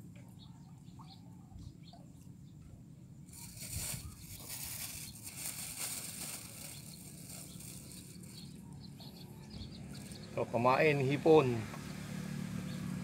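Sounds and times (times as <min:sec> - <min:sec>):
low outdoor rumble: 0:00.0 - 0:13.0
plastic bag crinkling: 0:03.3 - 0:08.6.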